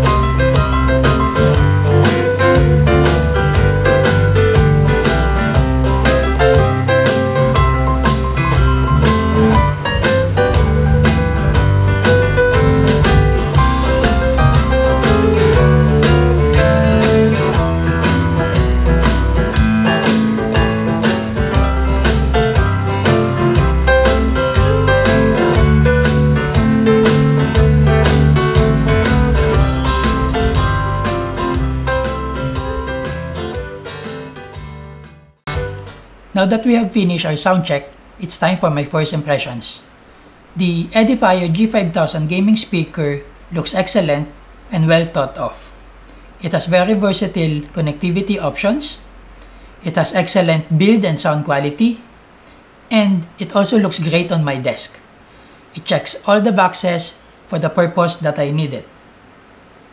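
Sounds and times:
music with heavy bass beat: 0:00.0 - 0:36.1.

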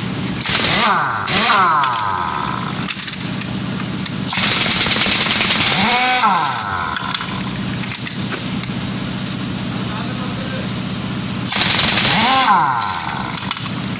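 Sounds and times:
pneumatic impact wrench hammering: 0:00.0 - 0:08.8, 0:11.5 - 0:13.9
steady low hum: 0:00.0 - 0:13.9.

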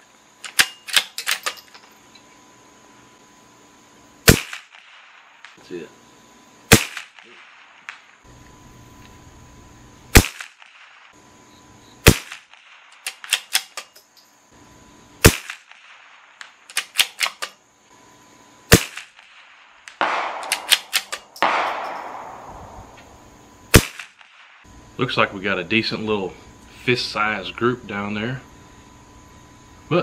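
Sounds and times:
rifle bolt clicks and clatter: 0:00.4 - 0:01.9, 0:12.9 - 0:14.3, 0:16.4 - 0:17.6, 0:20.4 - 0:22.1
rifle shots: 0:04.2 - 0:05.6, 0:06.7 - 0:08.2, 0:10.1 - 0:11.2, 0:12.0 - 0:13.9, 0:15.2 - 0:17.5, 0:18.7 - 0:23.0, 0:23.7 - 0:24.6.

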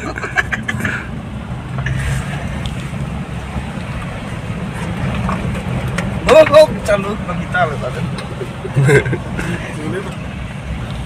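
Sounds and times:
car engine rumble: 0:00.0 - 0:11.0
road noise: 0:00.0 - 0:11.0.

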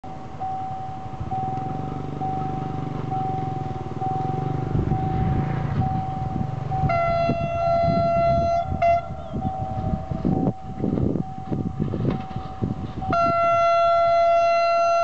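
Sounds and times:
level-crossing warning tone: 0:00.0 - 0:15.0
locomotive horn blasts: 0:06.8 - 0:10.4, 0:13.0 - 0:15.0.

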